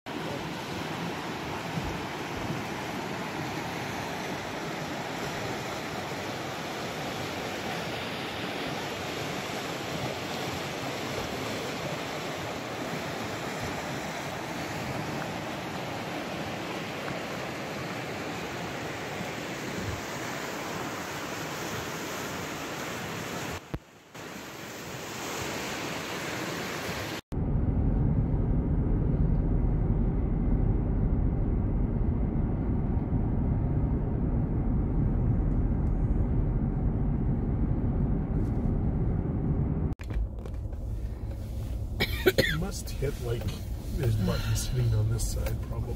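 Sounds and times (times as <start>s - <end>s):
rushing river water: 0.1s - 27.2s, 41.5s - 45.9s
road noise inside a car: 27.3s - 45.9s.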